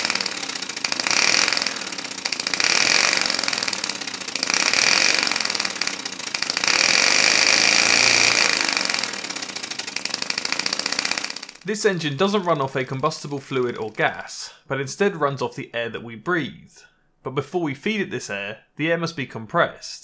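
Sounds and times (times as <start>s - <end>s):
air engine exhaust puffs: 0.0s - 14.2s.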